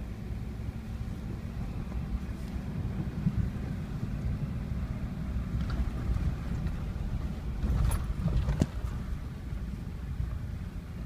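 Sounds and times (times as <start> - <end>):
engine and tyre rumble: 0.0 - 11.0.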